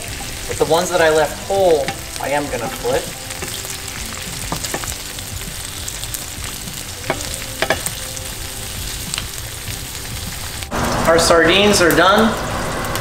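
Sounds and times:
fish sizzling in oil: 0.0 - 13.0
metal tongs clicking on pan: 7.1 - 8.0.

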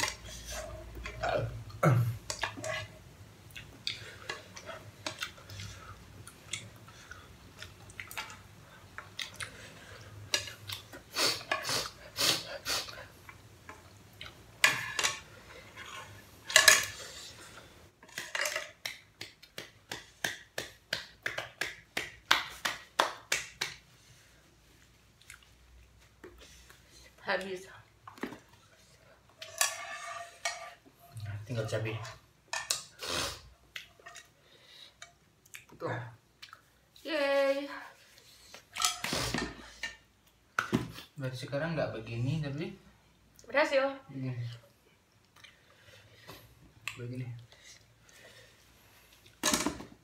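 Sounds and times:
utensils scraping a saucepan: 0.0 - 1.2, 29.4 - 30.9.

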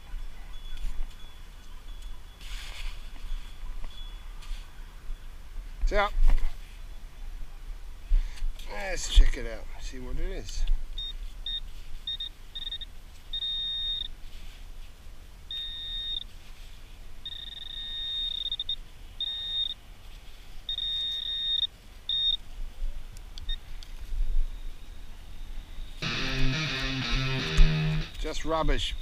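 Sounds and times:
metal detector pinpointer beeping: 11.0 - 14.1, 15.5 - 16.3, 17.2 - 19.8, 20.7 - 22.4.

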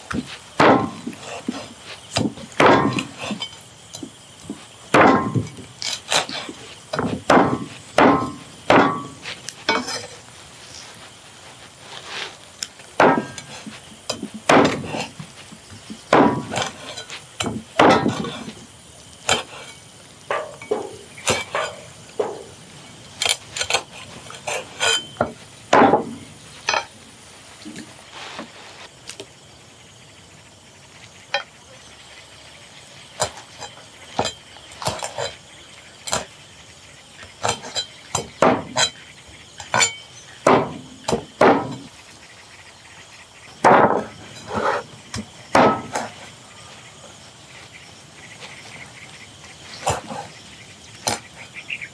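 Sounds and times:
utensils clinking against cookware: 7.0 - 10.2, 23.2 - 25.3, 37.4 - 39.0, 39.6 - 40.1.

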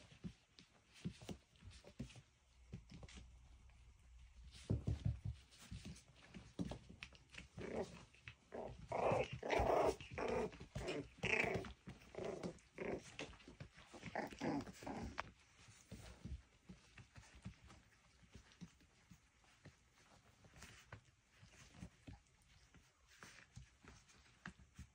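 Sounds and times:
puppies growling: 6.8 - 24.9.

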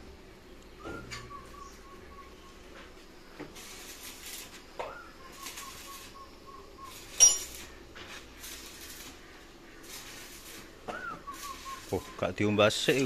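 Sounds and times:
sharp metallic clink: 7.1 - 7.7.

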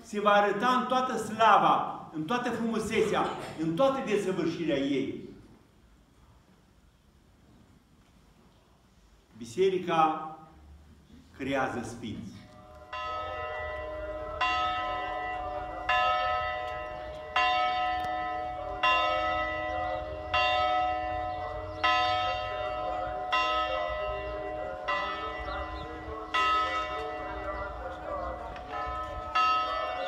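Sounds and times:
church bell tolling: 12.5 - 30.0.

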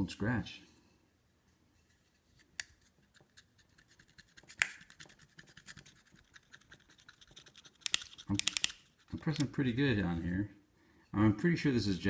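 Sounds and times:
screwdriver scratching metal platter: 2.8 - 10.0.

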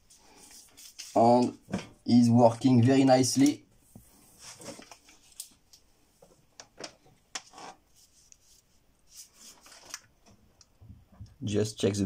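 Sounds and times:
rustles of hands handling wires: 0.0 - 2.1, 3.3 - 11.4
faint clicks of handling tools: 4.7 - 7.5.

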